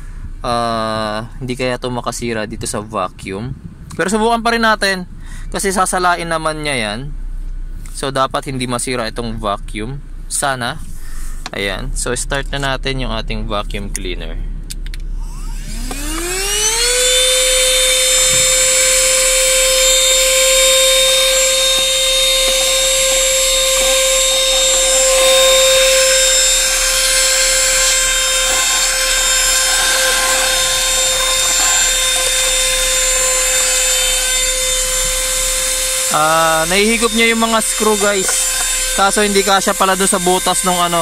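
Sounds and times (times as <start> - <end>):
handheld vacuum cleaner whine: 15.2 - 41.0
vacuum sucking up screws: 15.3 - 41.0.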